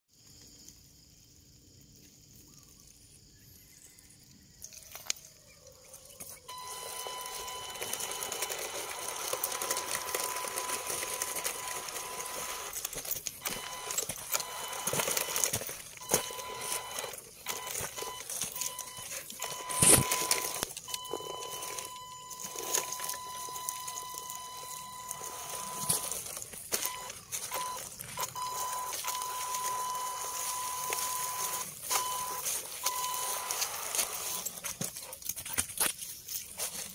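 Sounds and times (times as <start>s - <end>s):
electric motor whine: 6.5s - 34.6s
scattered clicks: 6.5s - 36.3s.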